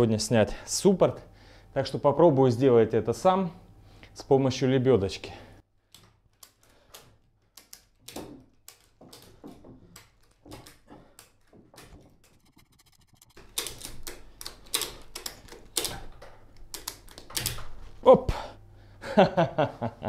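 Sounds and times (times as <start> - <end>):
low hum: 11.8 - 14.0.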